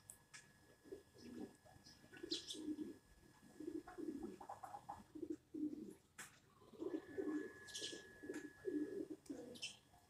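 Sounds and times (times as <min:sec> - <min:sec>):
dove cooing: 0:00.8 - 0:06.0, 0:06.6 - 0:09.8
bird chirp: 0:01.2 - 0:02.9, 0:06.6 - 0:09.9.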